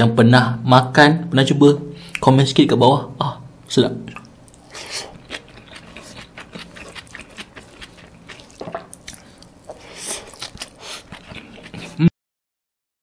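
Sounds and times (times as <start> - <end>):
man chewing with lip smacks: 4.1 - 12.0.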